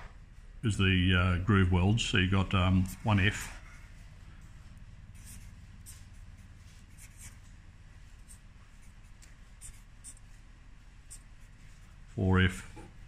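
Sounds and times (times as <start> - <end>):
low room hum: 0.0 - 13.0
marker scratching on whiteboard: 5.1 - 12.1.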